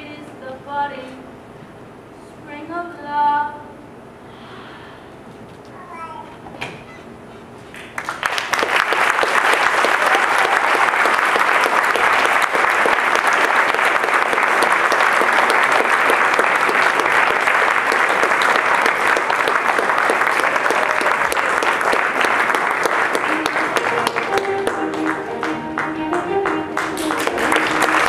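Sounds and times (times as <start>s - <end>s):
audience applauding: 7.7s - 28.0s.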